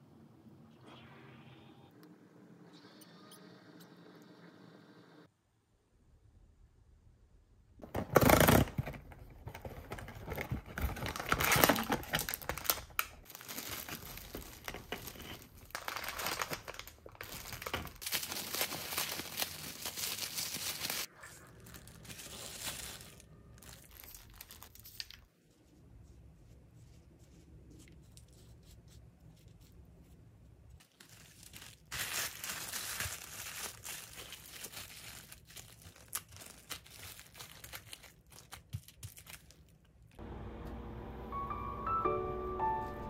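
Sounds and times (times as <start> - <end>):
plastic bag crinkling: 7.9 - 25.3, 30.8 - 39.8
crackers crunching: 9.7 - 25.3, 30.8 - 40.2.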